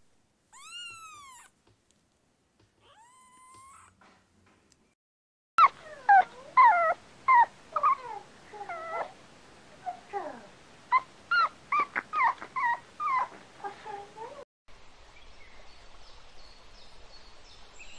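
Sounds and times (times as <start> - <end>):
dogs yipping and whining: 0.6 - 1.5, 5.6 - 9.2, 9.8 - 13.9.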